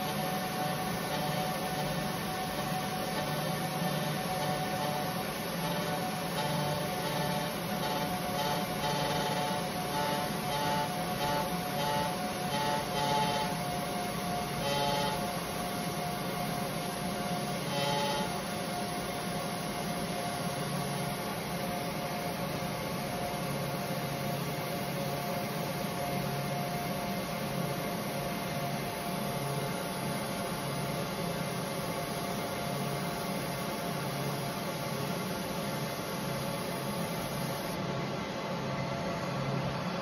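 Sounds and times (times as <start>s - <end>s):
constant hum-like tone: 0.0s - 40.0s
laser machine fan whir: 0.0s - 40.0s.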